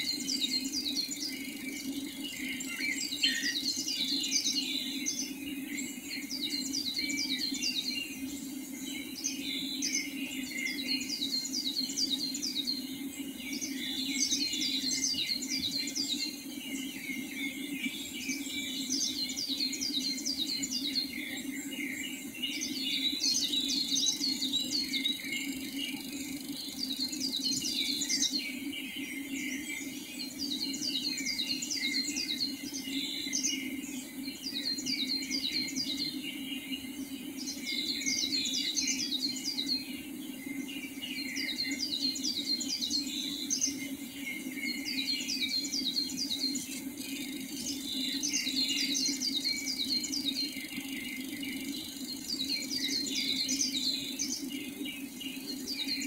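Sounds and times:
birds chirping: 0:00.0 - 0:56.0.

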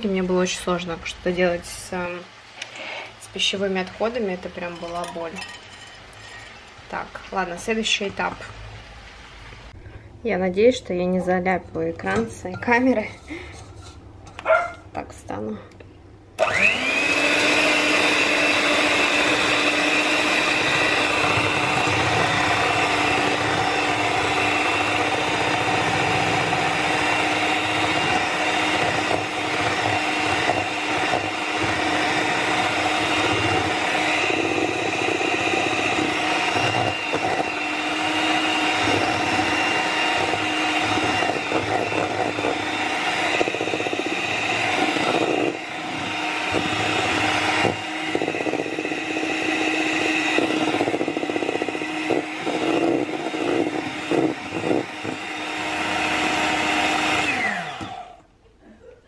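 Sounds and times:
electric hand mixer whisking: 0:16.4 - 0:58.3.

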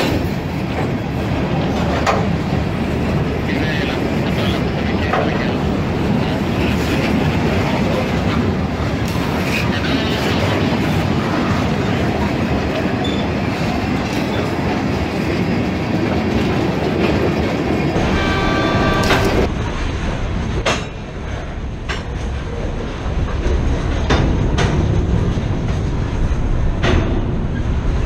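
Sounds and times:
wheels clacking over rail joints: 0:00.0 - 0:09.7, 0:10.4 - 0:28.0
train wheels rumbling on rail: 0:00.0 - 0:28.0
train wheel squeal: 0:13.0 - 0:13.4.

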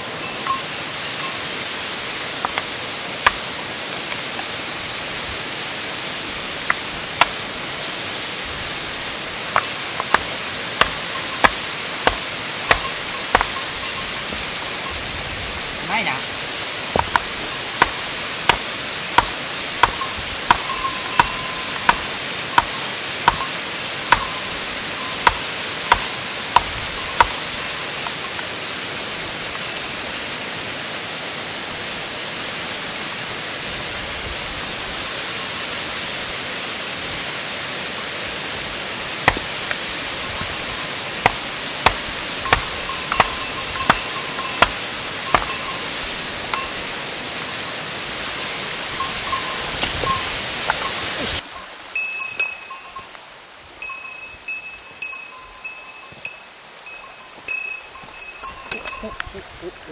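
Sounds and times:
hammer striking rock: 0:02.4 - 0:03.5, 0:06.6 - 0:07.4, 0:09.5 - 0:14.4, 0:16.9 - 0:24.5, 0:25.1 - 0:28.4, 0:39.2 - 0:40.6, 0:41.2 - 0:45.9.

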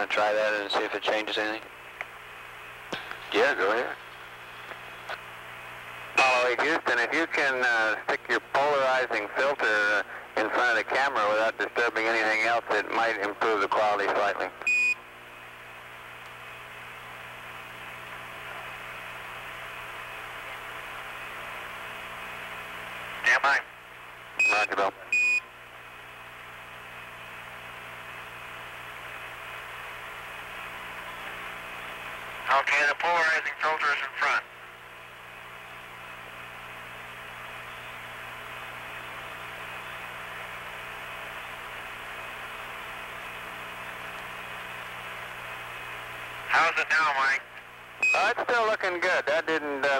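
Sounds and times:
radio static hiss: 0:00.0 - 0:01.7, 0:02.5 - 0:14.7, 0:19.9 - 0:23.8, 0:24.4 - 0:25.2, 0:30.5 - 0:34.8, 0:36.6 - 0:49.9
low mains hum: 0:00.0 - 0:49.9.

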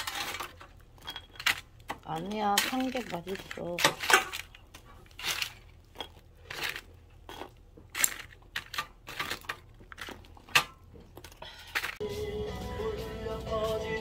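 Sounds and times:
tongs scraping basket: 0:00.0 - 0:10.5.

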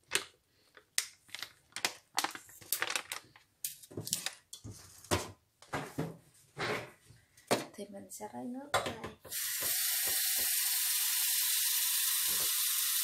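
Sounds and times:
plastic bag crinkling: 0:00.0 - 0:04.4.

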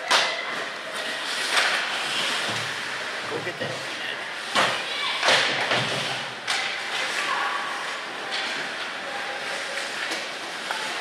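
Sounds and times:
skates scraping ice: 0:00.1 - 0:11.0
puck thud on boards: 0:04.5 - 0:06.8.

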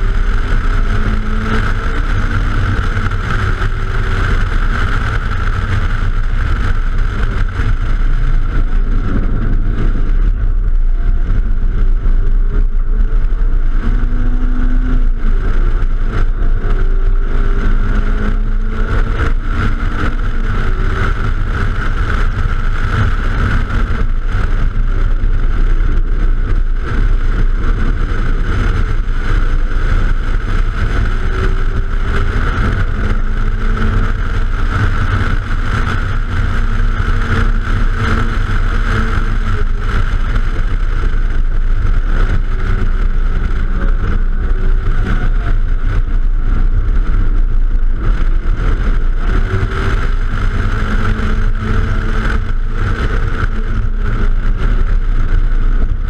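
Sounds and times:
car engine revving through gears: 0:00.0 - 0:56.0
wind rush over microphone: 0:00.0 - 0:56.0.

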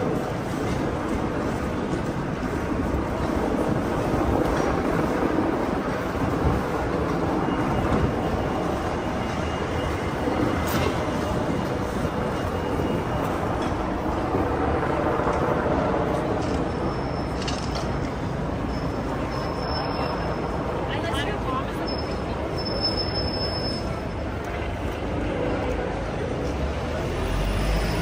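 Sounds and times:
busy city street din: 0:00.0 - 0:28.0.

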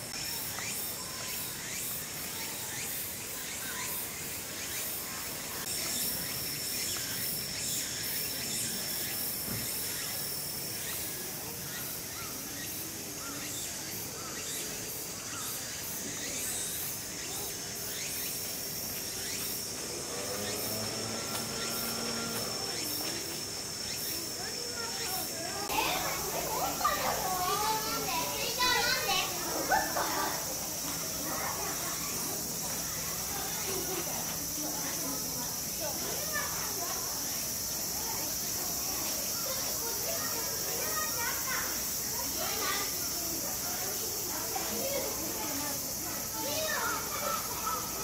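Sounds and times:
insects trilling: 0:00.0 - 0:48.0
shrill insect pulsing: 0:00.0 - 0:48.0.

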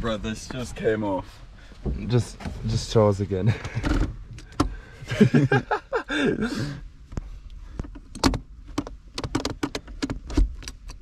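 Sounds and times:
gear-shift knob clicking: 0:07.8 - 0:11.0.

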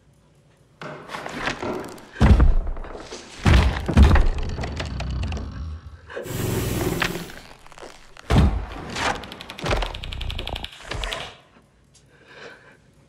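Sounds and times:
heavy thuds and knocks: 0:01.6 - 0:04.9
crash with hiss: 0:06.3 - 0:07.5
fast even clicking: 0:09.2 - 0:11.3.

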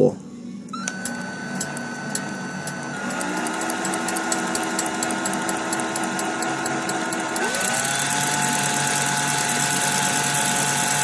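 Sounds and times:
cordless drill motor whining: 0:00.8 - 0:11.0
fast light ticking: 0:01.6 - 0:10.3.

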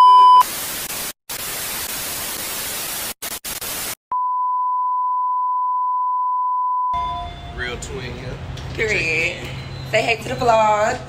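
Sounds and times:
short steady beep: 0:00.0 - 0:00.4
steady test-tone beep: 0:00.0 - 0:00.4
tv static hiss: 0:00.4 - 0:04.0.

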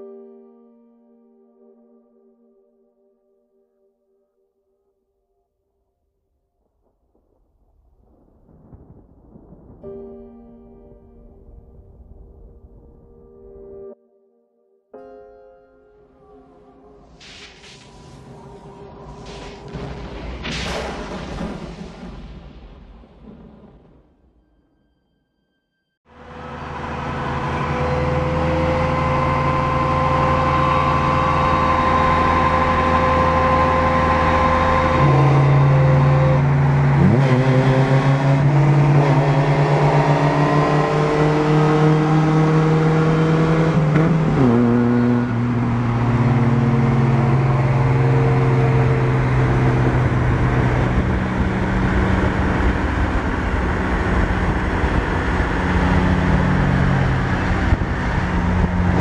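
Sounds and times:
vehicle engine drone: 0:16.2 - 0:20.2, 0:26.1 - 0:59.0
road noise: 0:16.3 - 0:21.5, 0:26.1 - 0:59.0
engine revving: 0:26.1 - 0:59.0.

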